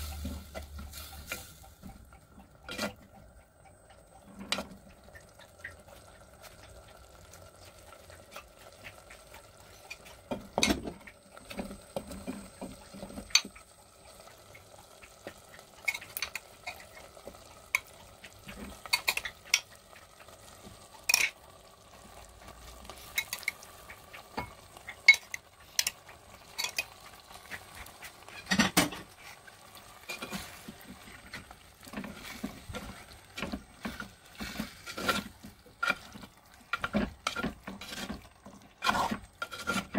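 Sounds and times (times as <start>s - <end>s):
gentle sizzle: 0.0s - 39.9s
spatula scraping a clay pot: 22.8s - 39.9s.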